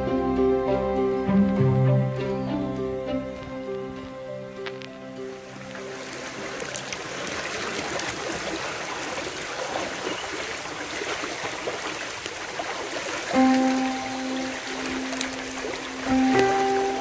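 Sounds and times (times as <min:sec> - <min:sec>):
background music: 0:00.0 - 0:07.6, 0:13.3 - 0:17.0
rushing stream water: 0:00.0 - 0:17.0.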